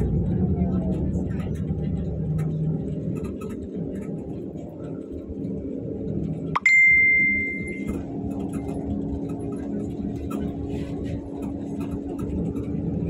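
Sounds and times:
bus engine and road rumble: 0:00.0 - 0:13.0
bell-like ding: 0:06.6 - 0:07.9.

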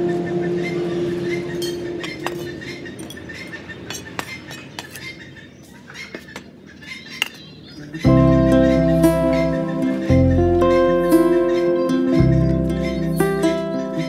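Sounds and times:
held music note: 0:00.0 - 0:02.6, 0:08.1 - 0:14.0.

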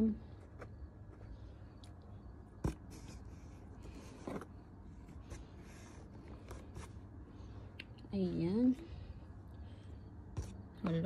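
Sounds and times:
cardboard rustling and scraping: 0:02.6 - 0:07.1.

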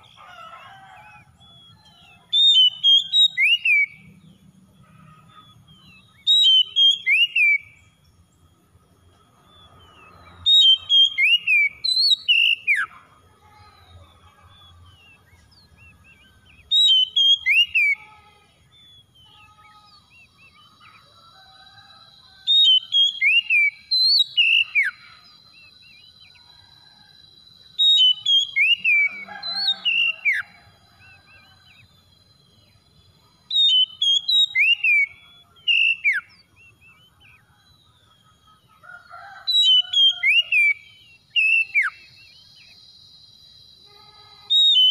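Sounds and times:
bird singing whistled phrases: 0:01.1 - 0:04.1, 0:05.8 - 0:07.8, 0:10.4 - 0:13.0, 0:15.0 - 0:18.2, 0:22.5 - 0:26.4, 0:27.8 - 0:31.8, 0:33.5 - 0:37.5, 0:39.5 - 0:42.8, 0:43.9 - 0:44.9.

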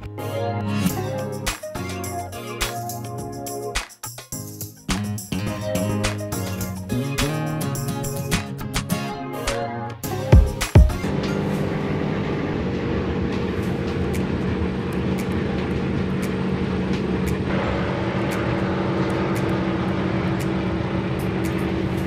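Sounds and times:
outboard engine droning: 0:11.0 - 0:22.0.

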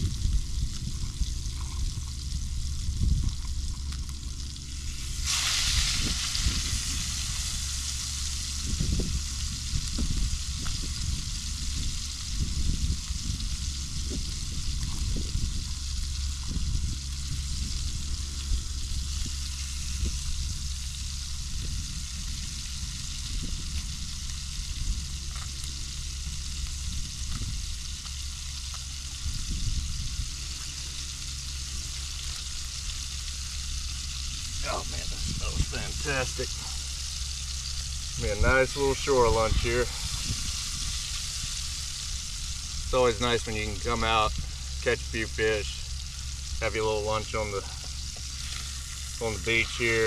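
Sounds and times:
fish sizzling in a frying pan: 0:00.0 - 0:50.0
low uneven rumble: 0:00.0 - 0:50.0.

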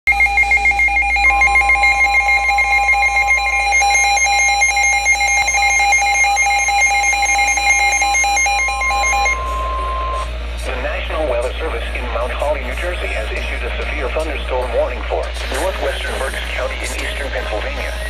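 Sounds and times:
steady alert tone: 0:00.1 - 0:10.4
two-pitch rapid beeping: 0:00.1 - 0:10.4
low hum: 0:00.1 - 0:18.0.

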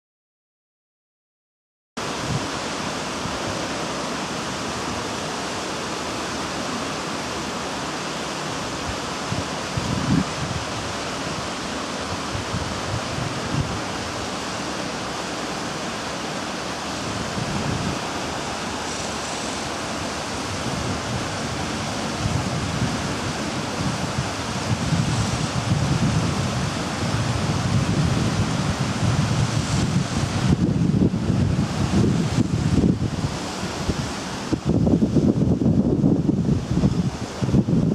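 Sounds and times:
wind buffeting microphone: 0:02.0 - 0:03.6, 0:08.6 - 0:37.9
outdoor rushing noise: 0:02.0 - 0:37.9.

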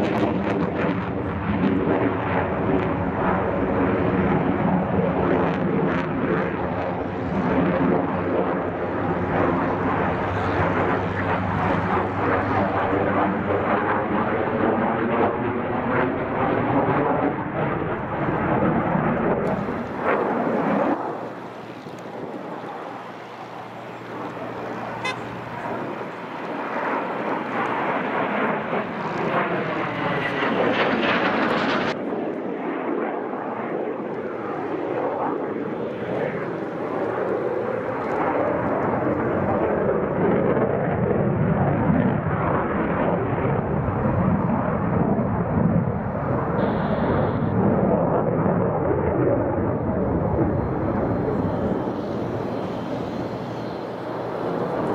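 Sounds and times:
fighter jet whooshing overhead: 0:00.0 - 0:33.2, 0:44.2 - 0:54.9.

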